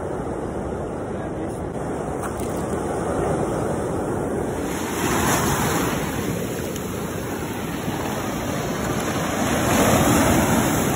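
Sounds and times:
surf washing over rocks: 0.0 - 10.9.

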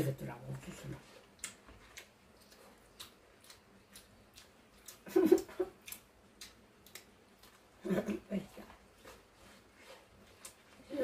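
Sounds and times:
teeth biting corn kernels: 1.4 - 7.7.

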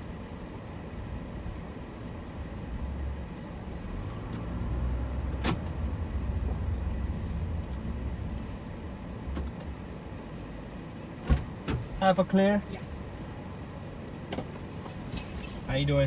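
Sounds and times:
car cabin rumble: 0.0 - 12.4.

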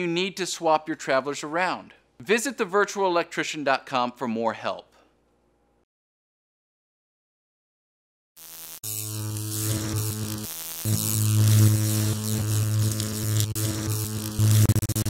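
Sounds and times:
crackling static: 8.4 - 15.0
electric hum and buzz: 8.4 - 15.0.

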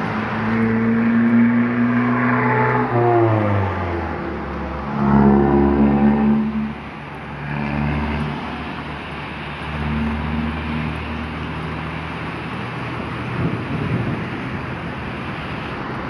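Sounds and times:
car engines revving: 0.0 - 16.0
heavy rain hissing: 8.1 - 15.9.

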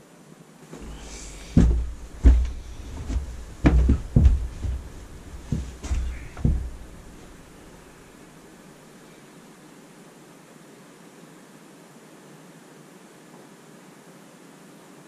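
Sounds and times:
person sitting on cushioned bench: 0.6 - 8.5
footsteps on carpeted floor: 0.7 - 8.3.

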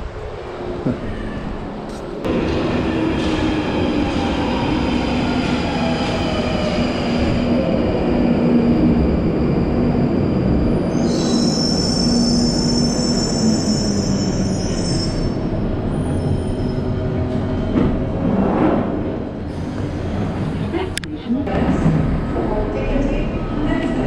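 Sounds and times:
train rumbling into platform: 0.0 - 24.0
squeal of wheels and brakes: 10.9 - 17.8.

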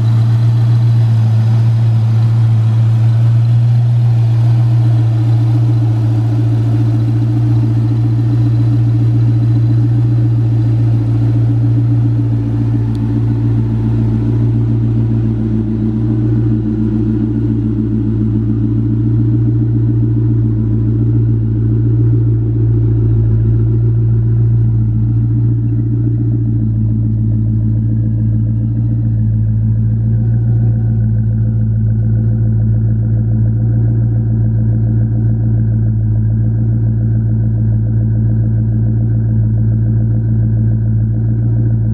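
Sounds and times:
car engine idling: 0.0 - 41.9.

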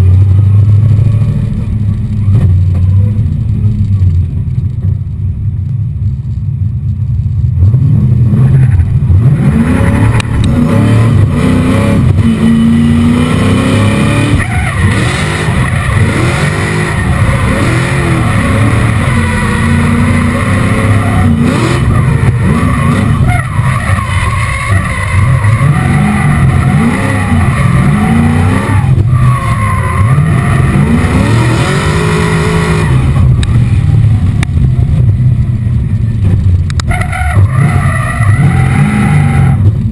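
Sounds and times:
car engine revving hard: 7.8 - 34.5, 36.8 - 39.9.

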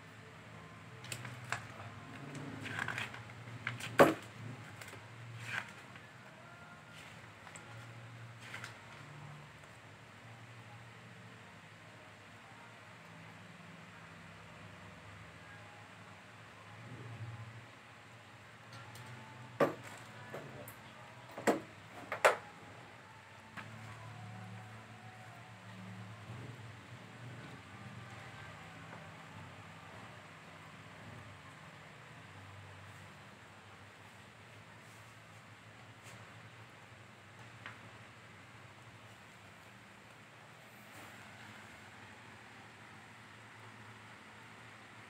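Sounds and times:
plastic bag and paper crinkling: 1.0 - 3.8.

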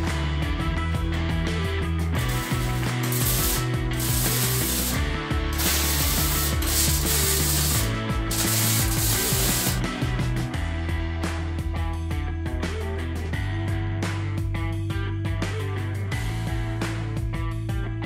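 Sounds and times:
background music: 0.0 - 18.0
welder arcing: 2.2 - 9.9.

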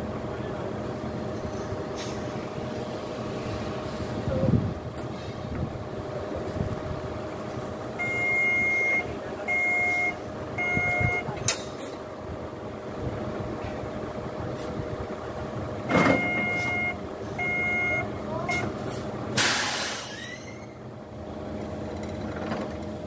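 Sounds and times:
engine idling hum: 0.0 - 19.5
vehicle backup alarm beeping: 7.9 - 11.5, 15.8 - 18.8.

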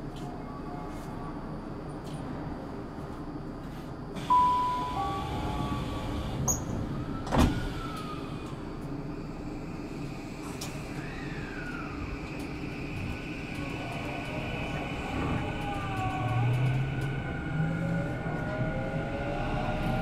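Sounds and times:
train background hum: 0.0 - 20.0
train door chime: 4.2 - 6.7
sliding doors closing with thump: 5.2 - 8.2.

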